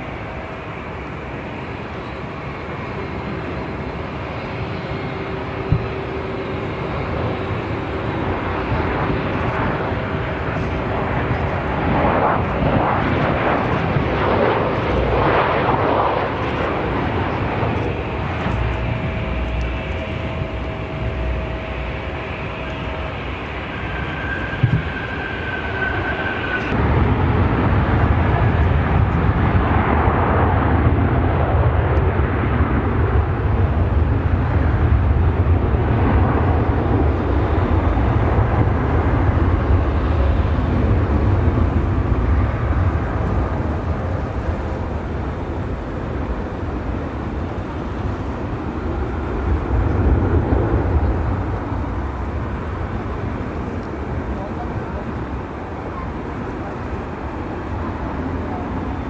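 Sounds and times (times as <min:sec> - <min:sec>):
deep jet engine rumble: 0:00.0 - 0:59.0
jet engine whine: 0:00.0 - 0:59.0.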